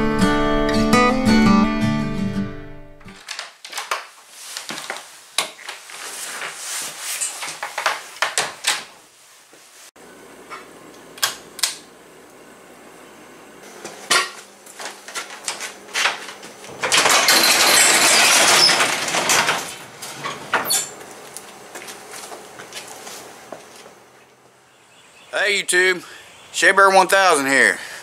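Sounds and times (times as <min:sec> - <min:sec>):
knocks and clatter: 0:15.1 - 0:21.0
garage door rattling up tracks: 0:15.3 - 0:21.0.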